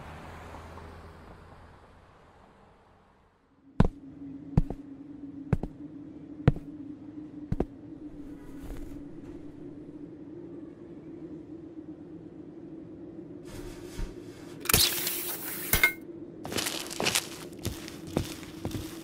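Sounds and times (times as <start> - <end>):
low rumble: 3.5 - 14.6, 16.0 - 19.0
steady low hum: 3.5 - 19.0
footsteps on pavement: 16.5 - 19.0.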